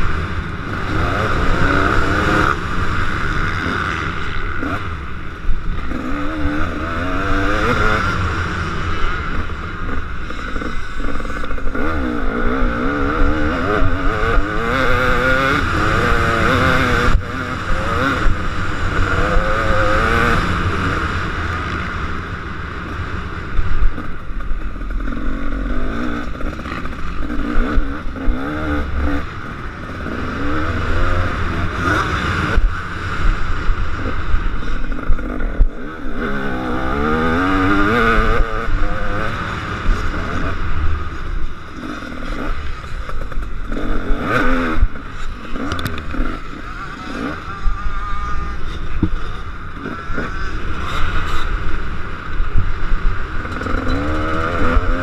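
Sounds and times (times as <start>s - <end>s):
motocross bike engine revving: 0.0s - 55.0s.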